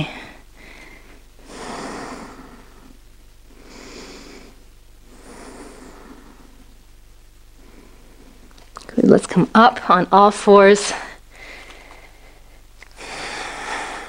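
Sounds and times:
woman breathing slowly: 0.0s - 6.8s, 7.5s - 8.5s, 10.9s - 14.0s.

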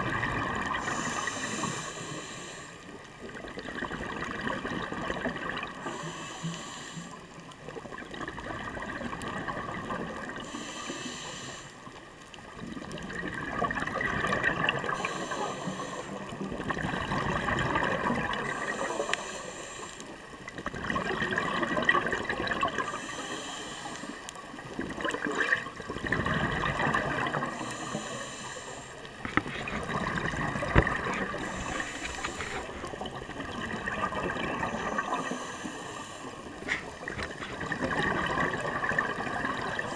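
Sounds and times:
bubbling on exhale: 0.0s - 2.6s, 3.3s - 6.7s, 12.6s - 19.4s, 20.6s - 28.6s, 29.2s - 39.9s
regulator hiss on inhale: 0.7s - 3.0s, 5.8s - 7.5s, 10.4s - 12.1s, 14.8s - 16.4s, 18.4s - 20.3s, 22.8s - 24.4s, 27.4s - 29.2s, 31.2s - 33.0s, 34.6s - 36.9s.

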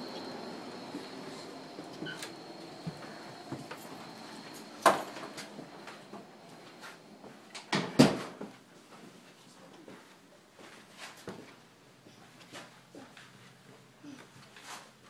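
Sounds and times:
footsteps on stairs: 0.1s - 11.5s.

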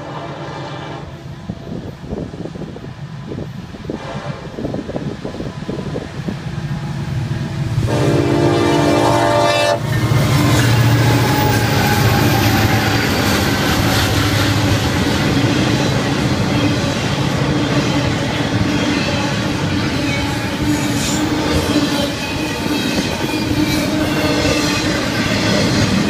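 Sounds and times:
train horn blast: 0.0s - 1.4s, 3.9s - 4.7s, 7.7s - 14.8s, 17.5s - 26.0s
diesel locomotive engines: 0.0s - 26.0s.

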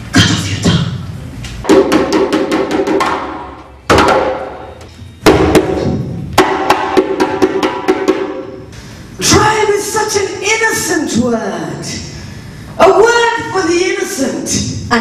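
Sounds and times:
hand drum playing: 1.6s - 4.6s, 5.2s - 8.6s.

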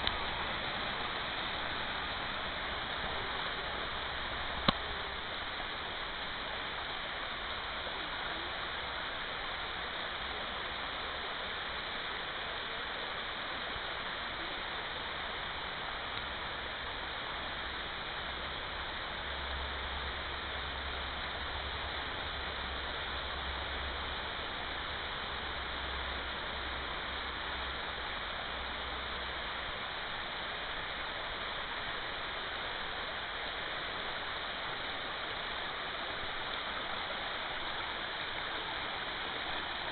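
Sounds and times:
stream water rushing: 0.0s - 39.9s.

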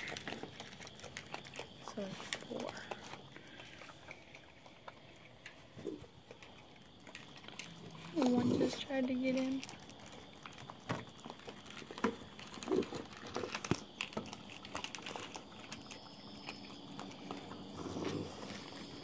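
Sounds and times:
clicks and crunches of food: 0.0s - 8.2s, 9.5s - 19.0s
raccoons feeding and scuffling: 0.0s - 19.0s.

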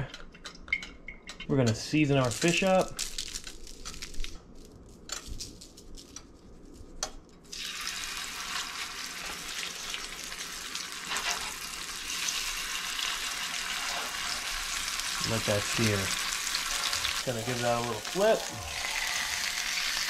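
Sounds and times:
fish sizzling in hot oil: 7.5s - 20.0s.

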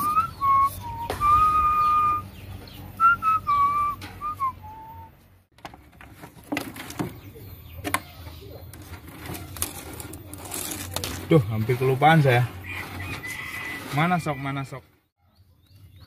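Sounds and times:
man whistling a tune: 0.0s - 2.3s, 3.0s - 5.2s.

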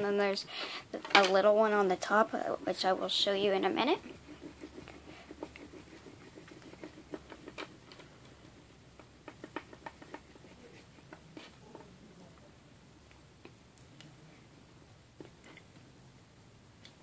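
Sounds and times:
fingers tapping and rubbing on wood: 4.1s - 11.9s.

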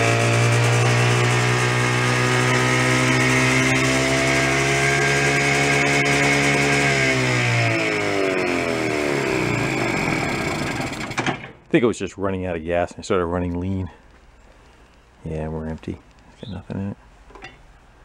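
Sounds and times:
two-stroke engine running: 0.0s - 11.5s.

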